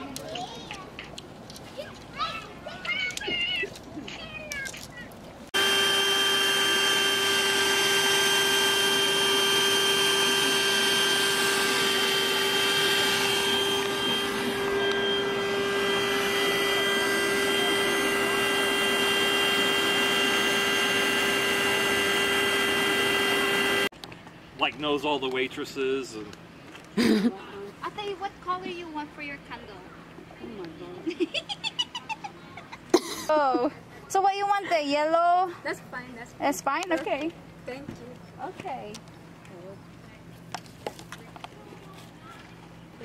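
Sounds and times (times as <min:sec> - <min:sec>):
machine running with whine: 0:05.6 - 0:23.9.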